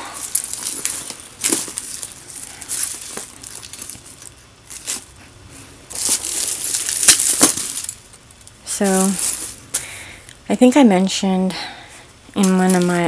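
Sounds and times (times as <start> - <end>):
plastic wrap crinkling: 0.0 - 9.9.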